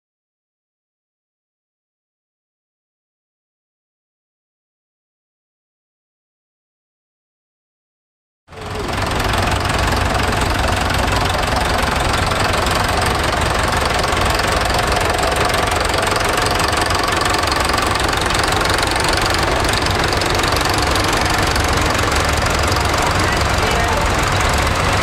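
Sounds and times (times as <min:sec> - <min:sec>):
tractor engines running at low revs: 0:08.5 - 0:25.0.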